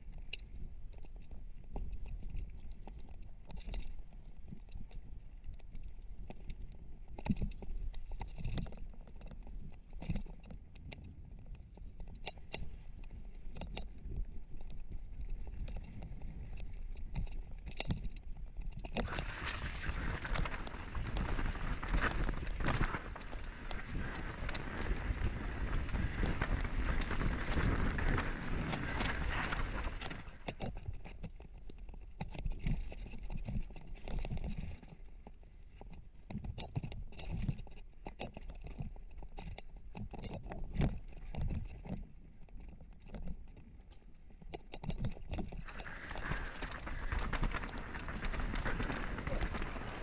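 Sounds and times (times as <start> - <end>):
bike clicks and knocks: 19.0 - 30.8, 45.6 - 50.0
tyres running over dirt: 19.0 - 30.9, 45.6 - 50.0.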